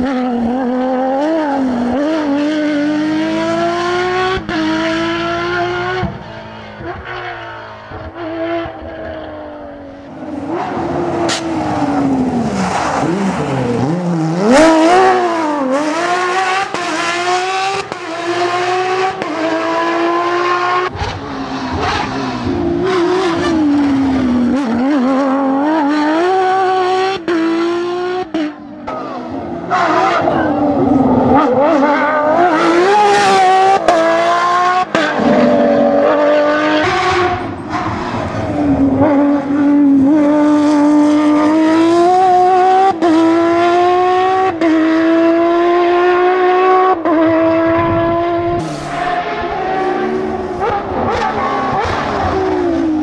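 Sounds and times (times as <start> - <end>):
race car engine revving: 0.0 - 53.0.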